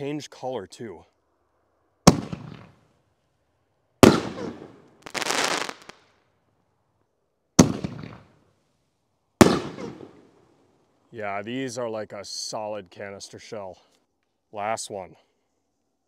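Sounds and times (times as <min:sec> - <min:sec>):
firework shells banging: 0:02.1 - 0:02.8, 0:04.0 - 0:06.0.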